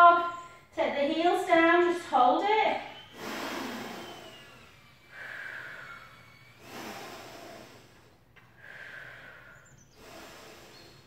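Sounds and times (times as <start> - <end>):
woman breathing hard: 2.8 - 11.0.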